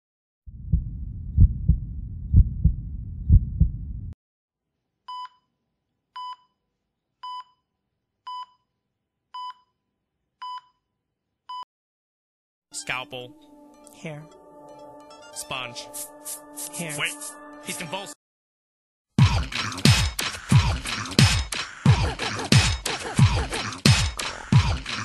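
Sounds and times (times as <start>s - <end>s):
heartbeat thumps: 0.5s - 4.2s.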